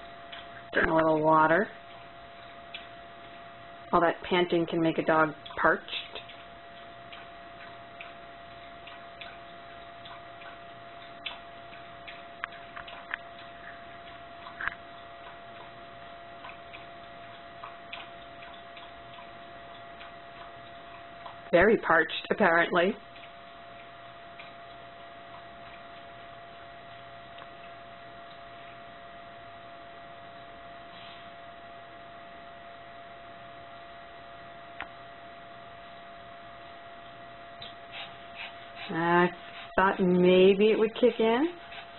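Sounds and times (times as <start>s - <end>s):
low electrical hum: 0.0s - 41.9s
dog lapping water: 4.1s - 28.8s, 37.0s - 41.9s
faint ticks: 5.4s - 21.5s.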